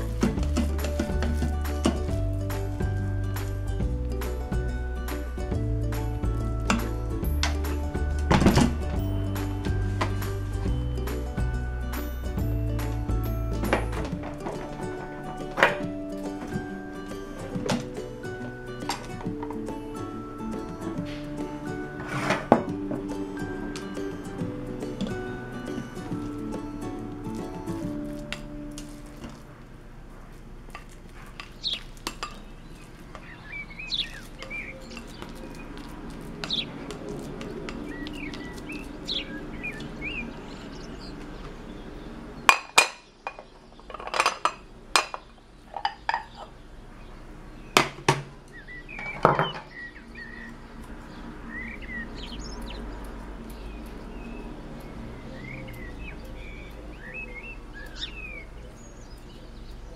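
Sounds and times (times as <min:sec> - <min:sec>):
utensils clinking on dishes: 0:00.0 - 0:29.5, 0:30.7 - 0:39.8, 0:42.5 - 0:46.5
birds chirping: 0:00.0 - 0:59.9.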